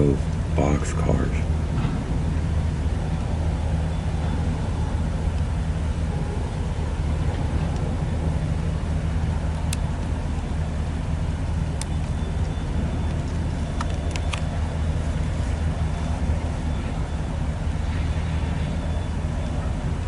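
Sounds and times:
freight cars rumbling on track: 0:00.0 - 0:20.0
sharp metallic clicks: 0:13.8 - 0:14.6.

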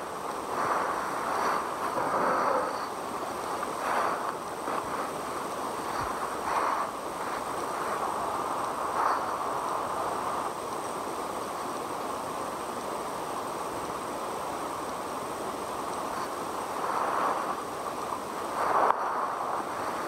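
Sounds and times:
faint high-pitched whine: 0:00.0 - 0:20.0
steady outdoor hiss: 0:00.0 - 0:20.0.

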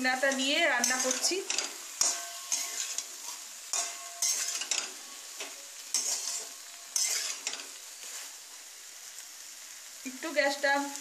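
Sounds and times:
metal spatula scraping a pan: 0:00.0 - 0:08.4
soft sizzle of frying: 0:00.0 - 0:11.0.

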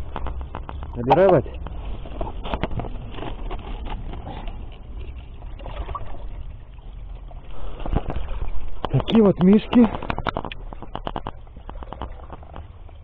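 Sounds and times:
water splashing into stone trough: 0:05.0 - 0:13.0
clicks and knocks: 0:07.8 - 0:12.7.

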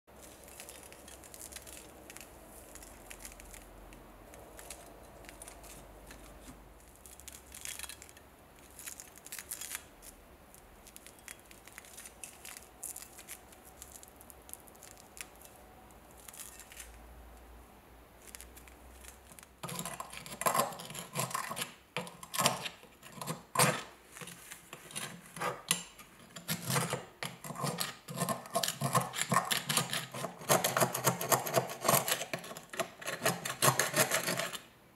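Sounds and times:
tool scraping rust off metal: 0:19.6 - 0:34.7.

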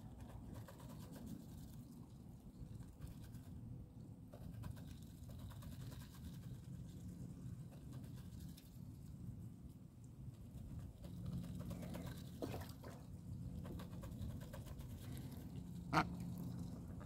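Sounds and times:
low steady rumble: 0:00.0 - 0:17.0
duck bill clicking in feed: 0:04.3 - 0:06.6.

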